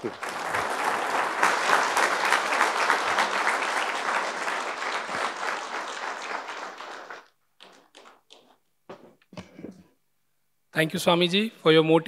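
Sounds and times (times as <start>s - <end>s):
audience applause: 0.0s - 8.4s.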